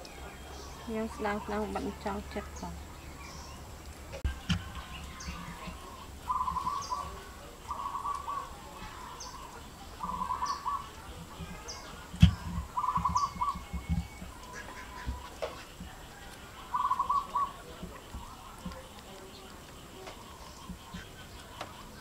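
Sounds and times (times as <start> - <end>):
bird calling pulsed notes: 0.0 - 18.4
faint high bird chirps: 4.3 - 17.7.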